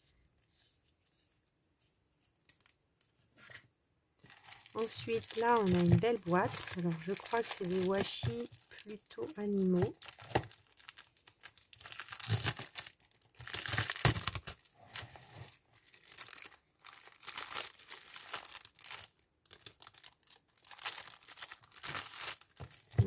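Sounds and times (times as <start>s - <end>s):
plastic film tearing and crinkling: 4.2s - 23.0s.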